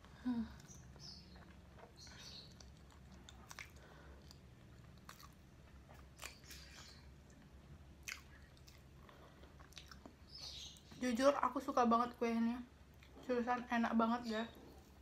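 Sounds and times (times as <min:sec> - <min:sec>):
faint chewing: 0:00.0 - 0:11.0
wet mouth clicks and smacks: 0:02.5 - 0:04.4.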